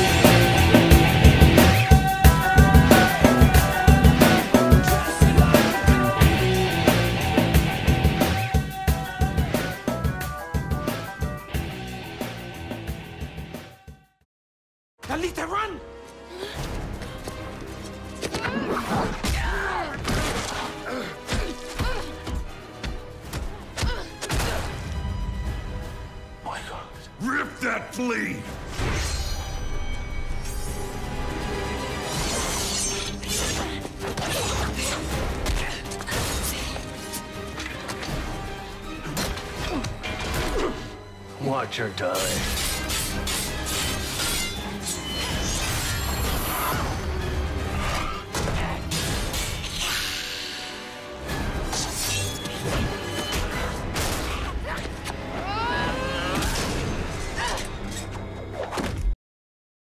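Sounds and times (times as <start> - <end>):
background music: 0.0 - 14.2, 15.0 - 59.0.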